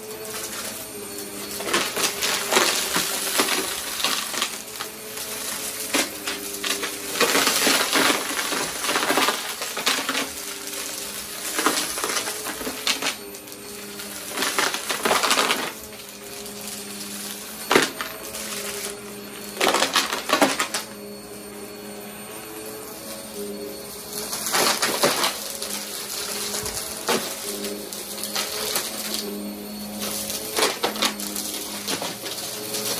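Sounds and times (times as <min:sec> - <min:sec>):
vacuum cleaner motor hum: 0:00.0 - 0:32.9
coins rattling through vacuum: 0:21.8 - 0:32.9.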